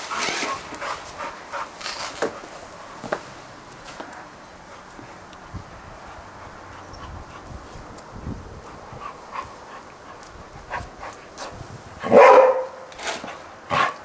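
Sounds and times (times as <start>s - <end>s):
dog barking: 12.0s - 12.9s.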